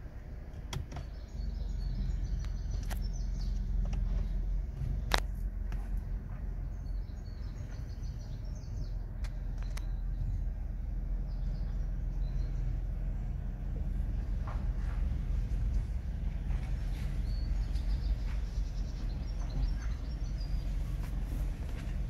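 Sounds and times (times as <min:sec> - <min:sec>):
steady low rumble: 0:00.0 - 0:22.0
small birds twittering: 0:00.3 - 0:22.0
sharp clicks and knocks: 0:00.6 - 0:01.2, 0:03.8 - 0:05.9.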